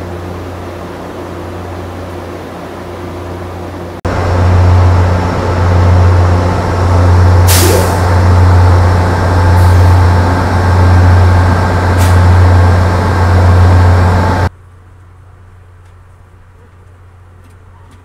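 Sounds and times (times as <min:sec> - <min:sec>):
diesel locomotives idling: 0:00.0 - 0:18.0
air release hiss: 0:07.4 - 0:08.0.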